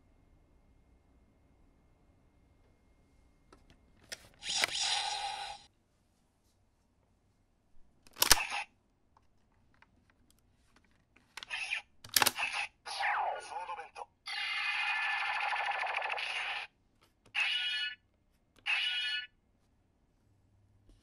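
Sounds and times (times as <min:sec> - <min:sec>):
plastic toy clicks and snaps: 0:08.1 - 0:08.7, 0:11.4 - 0:12.7.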